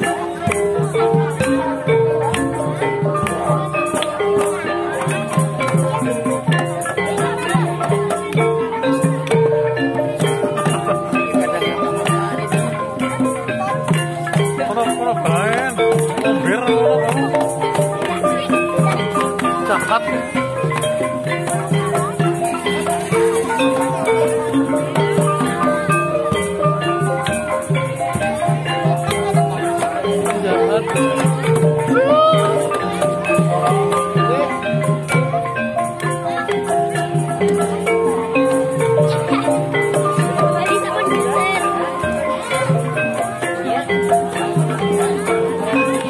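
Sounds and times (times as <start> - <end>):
gamelan gongs and metallophones: 0.0 - 46.0
hand drum strokes: 0.0 - 46.0.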